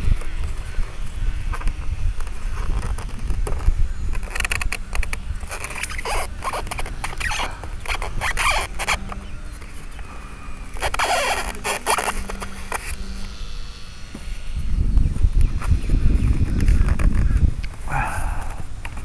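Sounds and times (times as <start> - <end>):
wind rumble on microphone: 0.0 - 10.1, 14.1 - 19.0
servos whirring: 0.0 - 19.0.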